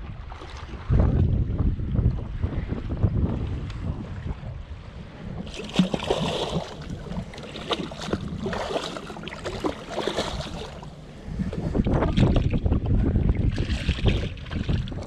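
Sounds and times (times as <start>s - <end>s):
water splashing beside boat hull: 0.0s - 1.6s, 5.2s - 15.0s.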